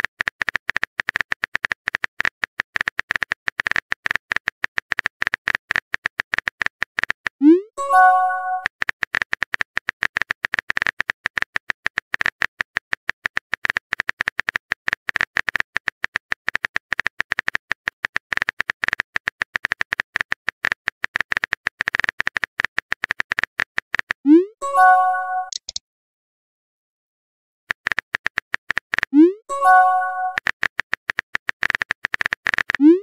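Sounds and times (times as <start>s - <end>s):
phone keyboard typing clicks: 24.9s - 25.8s, 27.7s - 33.0s.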